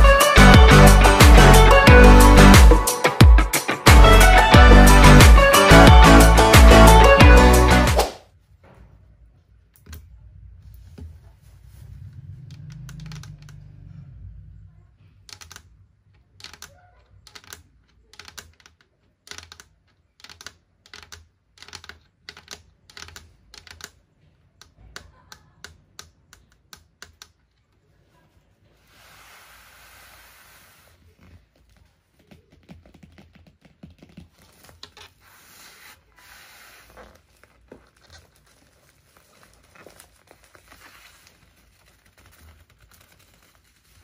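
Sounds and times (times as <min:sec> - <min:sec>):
plastic wrapping rustling: 0:31.0 - 0:44.0.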